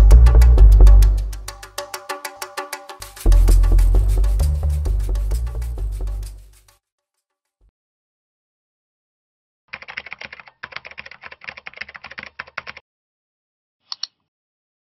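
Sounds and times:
computer keyboard typing: 9.7s - 12.8s
mouse click: 13.9s - 14.3s.

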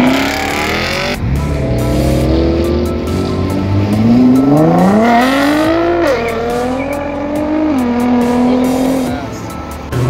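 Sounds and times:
car engine accelerating hard: 0.0s - 10.0s.

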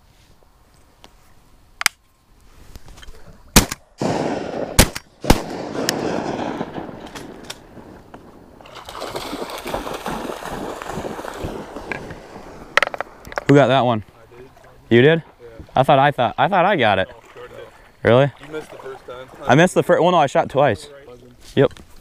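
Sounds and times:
shotgun shots: 3.6s - 8.0s.

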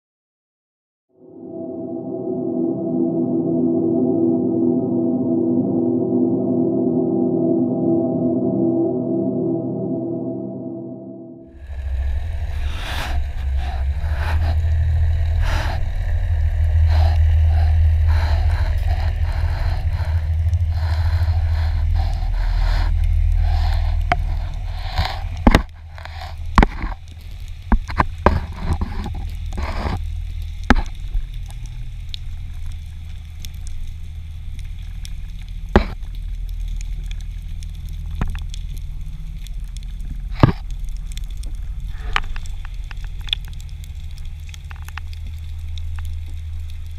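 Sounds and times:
underwater hiss: 11.5s - 46.9s
low rush of water: 11.6s - 27.1s
sharp clicks underwater: 11.8s - 46.9s.

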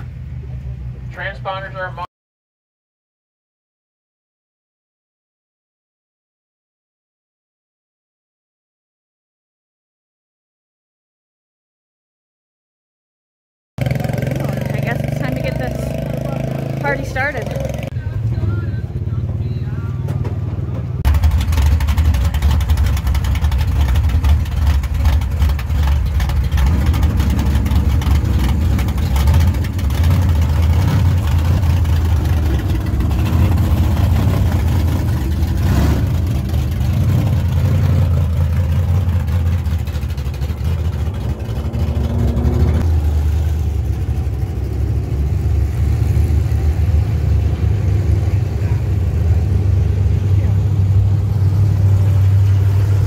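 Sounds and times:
race car engine running loudly: 13.8s - 53.0s.

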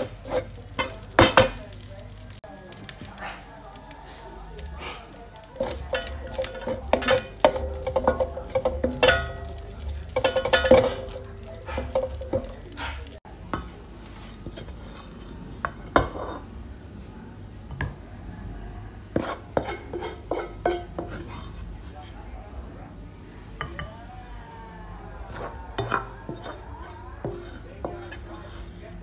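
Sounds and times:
wooden spatula scraping a wok: 0.0s - 2.4s, 3.1s - 13.2s, 13.9s - 16.5s, 19.1s - 22.2s, 25.3s - 29.0s
wok ringing: 0.0s - 2.8s, 3.6s - 13.2s, 19.6s - 21.0s.

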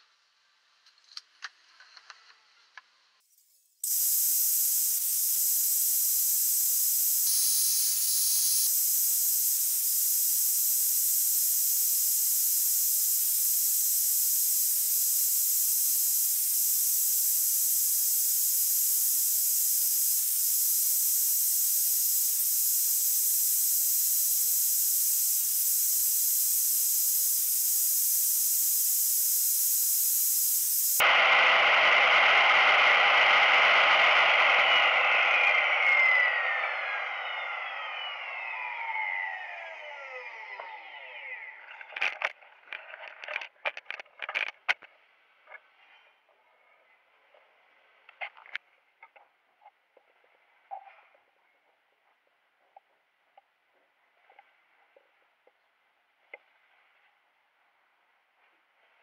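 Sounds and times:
table saw running: 30.6s - 41.8s.

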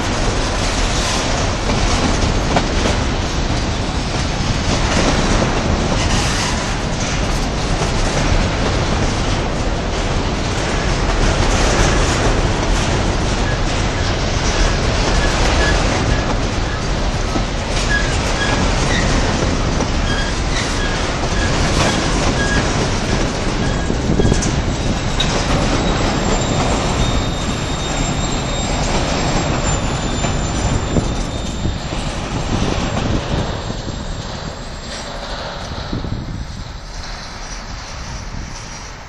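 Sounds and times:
steel wheels rumbling on rail: 0.0s - 39.0s
high wheel squeal: 13.4s - 36.0s.

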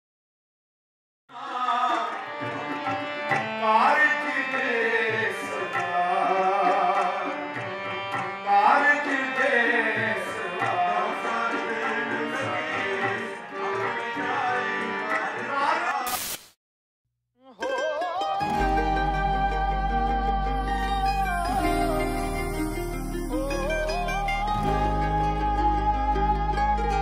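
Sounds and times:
tabla: 1.4s - 13.2s
sustained melody with rising slides: 18.4s - 26.9s.

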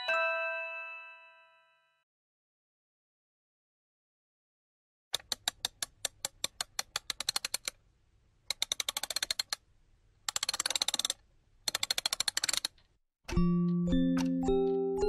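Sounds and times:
sharp clicks quickening into rattles: 5.2s - 7.8s, 8.5s - 9.6s, 10.2s - 13.0s.

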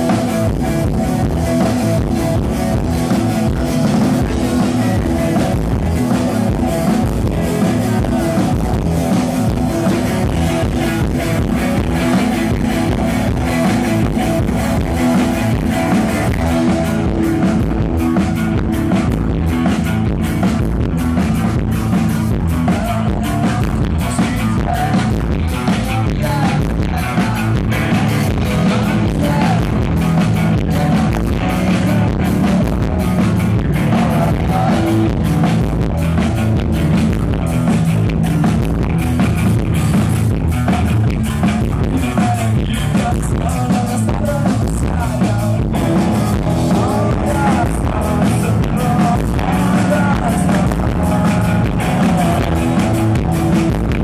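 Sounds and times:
drum kit beat: 0.0s - 54.0s
electric guitars: 0.0s - 54.0s
person singing: 1.9s - 17.8s, 22.3s - 35.8s, 40.6s - 54.0s.

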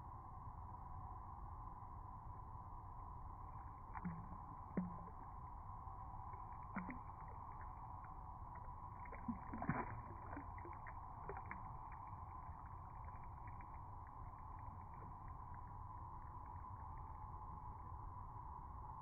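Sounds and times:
flowing stream water: 3.6s - 17.1s
small water splashes: 3.6s - 17.1s.

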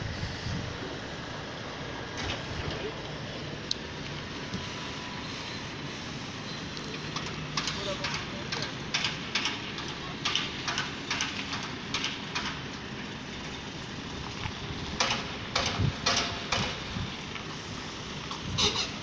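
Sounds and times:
heavy truck engine rumble: 0.0s - 19.0s
sharp clicks and knocks: 7.0s - 12.8s, 14.4s - 17.0s.

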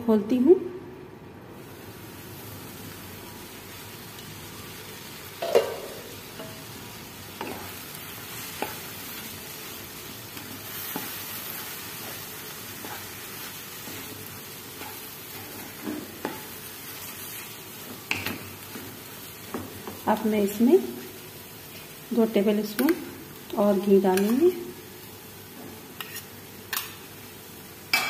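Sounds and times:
steady sizzle: 1.5s - 28.0s
spatula scraping a pan: 25.9s - 26.9s.

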